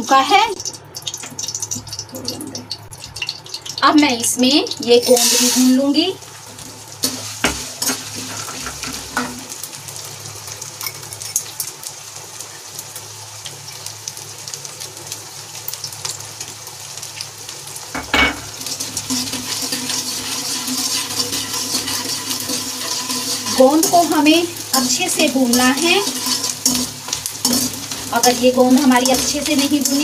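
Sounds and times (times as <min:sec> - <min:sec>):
gum sizzling in hot oil: 0:00.0 - 0:30.0.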